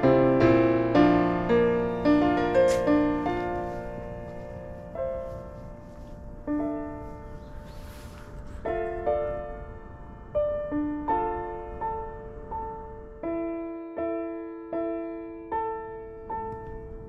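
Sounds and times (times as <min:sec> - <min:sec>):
slow gentle piano: 0:00.0 - 0:17.0.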